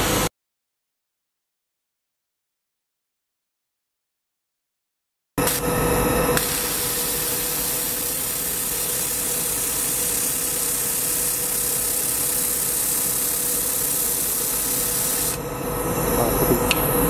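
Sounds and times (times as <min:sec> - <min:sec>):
welding hiss: 0:05.4 - 0:15.5
welding machine humming: 0:05.4 - 0:16.0.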